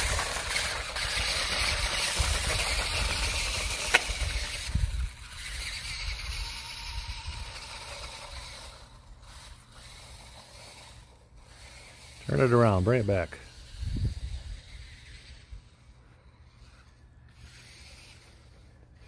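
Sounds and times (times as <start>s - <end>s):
toy truck electric motor and gears: 0.0s - 19.0s.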